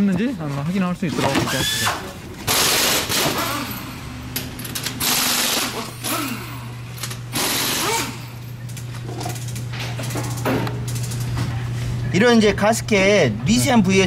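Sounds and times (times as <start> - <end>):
ratchet wrench rattling: 4.5 - 11.3.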